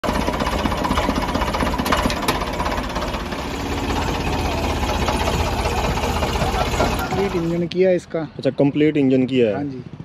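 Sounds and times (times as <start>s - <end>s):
tractor diesel engine running: 0.0s - 7.6s.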